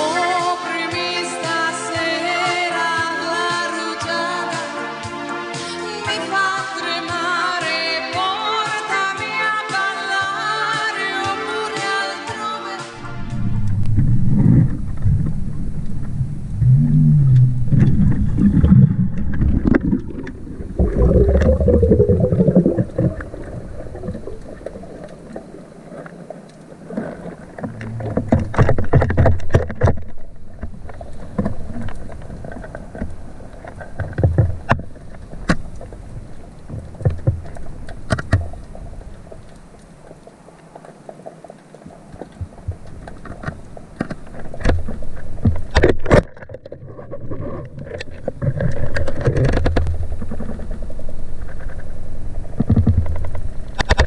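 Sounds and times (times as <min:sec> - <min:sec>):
water sloshing and splashing: 0:13.0 - 0:54.0.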